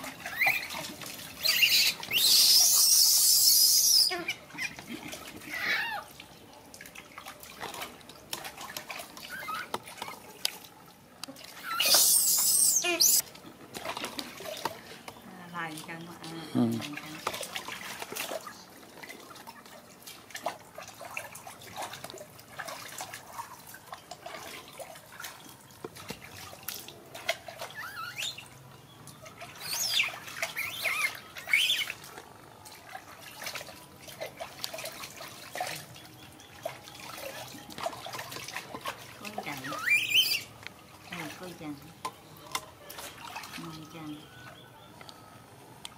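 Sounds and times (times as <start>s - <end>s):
water splashing in a plastic tub: 0.0s - 44.6s
baby monkey squealing: 0.2s - 0.8s, 1.4s - 4.8s, 5.5s - 6.1s, 9.3s - 9.7s, 11.6s - 13.2s, 27.7s - 28.4s, 29.6s - 31.9s, 39.7s - 40.5s.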